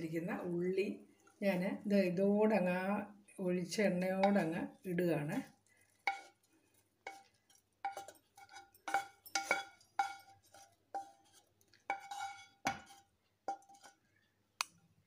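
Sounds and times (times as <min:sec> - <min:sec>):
wooden spatula scraping metal pan: 0:05.4 - 0:14.1.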